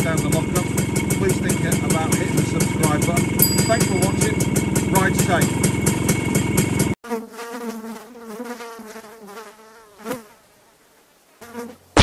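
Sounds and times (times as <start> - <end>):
two-stroke motorcycle engine running: 0.0 - 7.0
housefly buzzing: 7.0 - 10.4, 11.4 - 12.0.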